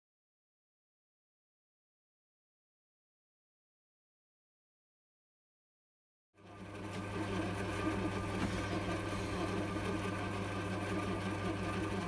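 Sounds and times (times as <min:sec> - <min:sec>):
metal lathe humming: 0:06.4 - 0:12.0.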